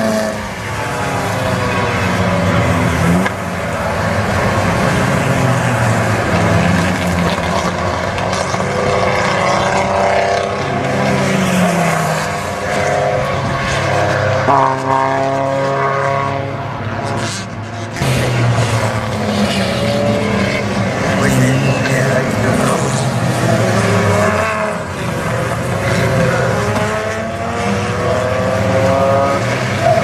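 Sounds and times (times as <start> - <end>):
racing car engines passing: 0.0 - 30.0.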